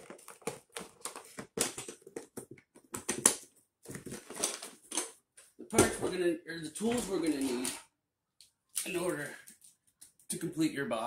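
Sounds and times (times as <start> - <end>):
plastic box clicks and knocks: 0.0 - 4.6
paper rustling: 0.0 - 5.1.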